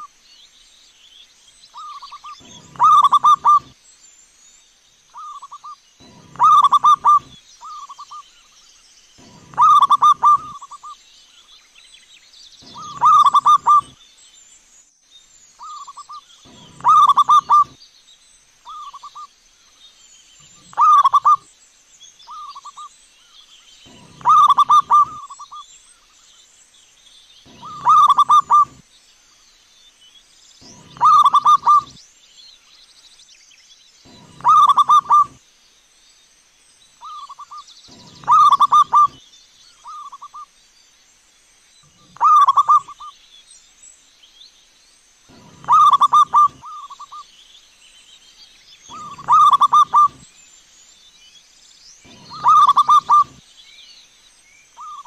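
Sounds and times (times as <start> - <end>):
dove cooing: 1.8 - 3.7, 5.2 - 8.2, 9.2 - 10.9, 12.6 - 14.0, 15.6 - 17.8, 20.4 - 21.4, 23.9 - 25.6, 27.5 - 28.8, 30.6 - 32.0, 34.1 - 35.4, 37.0 - 39.2, 42.0 - 43.1, 45.3 - 47.2, 48.9 - 50.2, 52.1 - 53.4.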